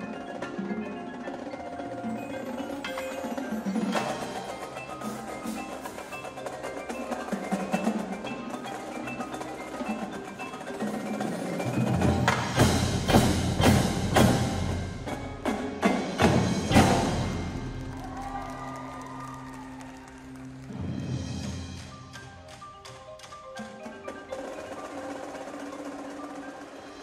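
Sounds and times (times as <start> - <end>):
drums and cymbals: 0.0 - 19.3, 20.6 - 27.0
marimbas playing: 0.0 - 27.0.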